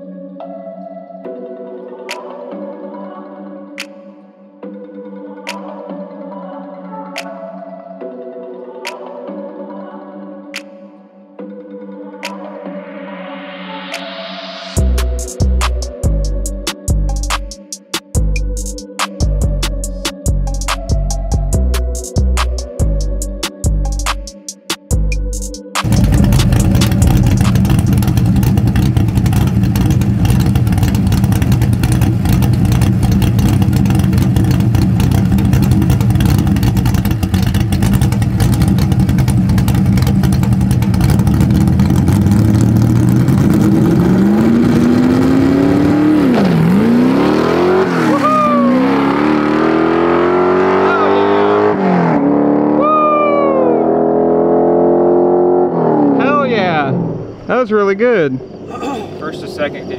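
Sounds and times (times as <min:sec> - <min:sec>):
car engine revving through gears: 0:25.8 - 0:52.9, 0:53.6 - 0:57.5.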